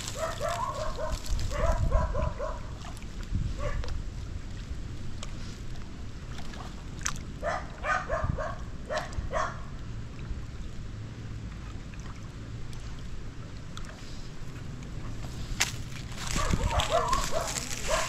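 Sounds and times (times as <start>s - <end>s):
dog yipping: 0.0s - 2.6s, 7.4s - 9.6s, 16.3s - 18.0s
wind rumble on microphone: 0.0s - 18.0s.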